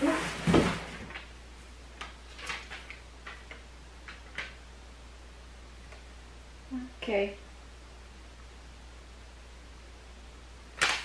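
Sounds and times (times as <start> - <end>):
box and paper clicks: 10.8 - 11.0.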